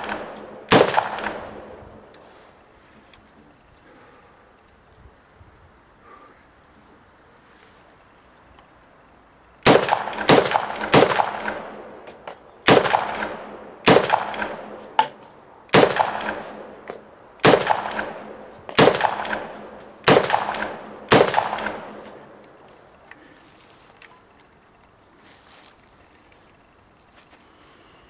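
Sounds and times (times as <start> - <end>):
rifle shots with echo: 0.0 - 2.1, 9.6 - 12.0, 12.6 - 22.4.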